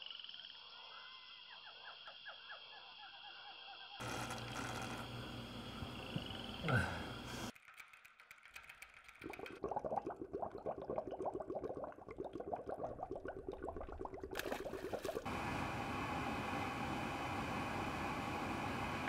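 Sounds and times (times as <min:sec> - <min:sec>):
fast dry ratcheting clicks: 0:07.5 - 0:09.6.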